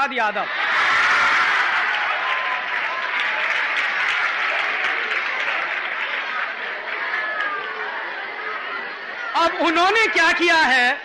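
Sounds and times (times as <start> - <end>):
voices in the crowd: 0.0 - 11.0
audience applauding: 0.6 - 8.6.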